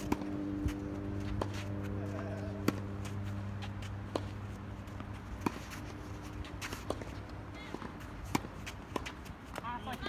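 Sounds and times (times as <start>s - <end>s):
low hum: 0.0s - 7.8s
tennis balls struck by rackets: 0.0s - 10.0s.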